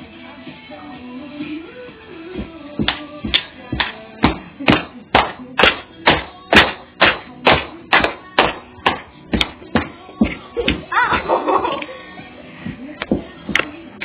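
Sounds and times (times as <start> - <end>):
sharp percussive hits: 2.8 - 9.9.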